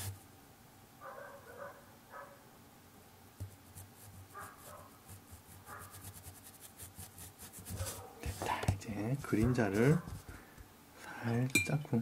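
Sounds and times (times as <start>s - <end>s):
distant dog barking: 1.0s - 2.5s, 4.3s - 5.0s, 5.7s - 6.0s, 7.8s - 8.3s
brush dabbing on paper: 3.4s - 10.6s.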